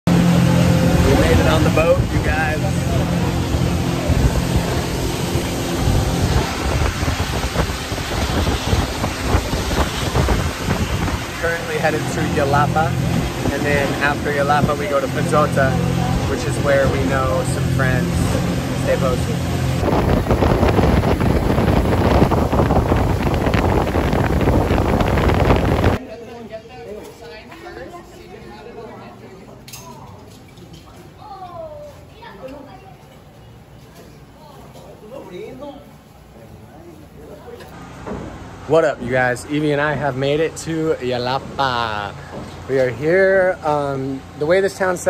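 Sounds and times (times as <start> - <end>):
boat engine drone: 0.1 - 26.0
rushing water and spray: 0.1 - 26.0
wind buffeting microphone: 0.9 - 16.8, 18.1 - 26.0.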